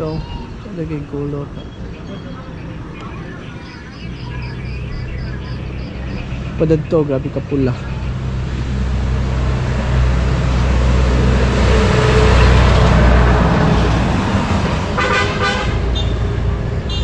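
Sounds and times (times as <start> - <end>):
truck engine humming: 0.0 - 17.0
truck road noise: 0.0 - 17.0
vehicle horn blast: 15.0 - 16.2.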